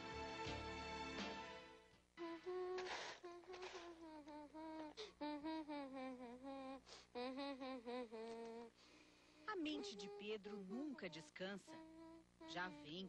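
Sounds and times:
background music: 0:00.0 - 0:02.0
boy humming: 0:02.2 - 0:13.0.

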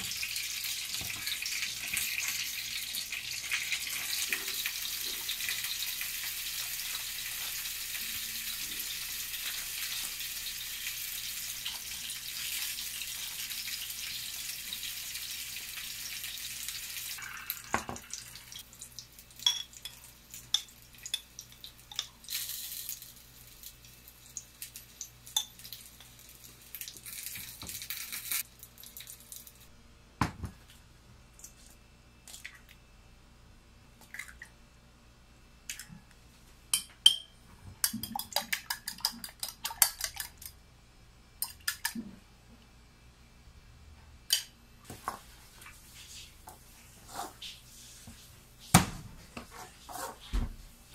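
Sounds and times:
tap water running: 0:00.0 - 0:27.9.

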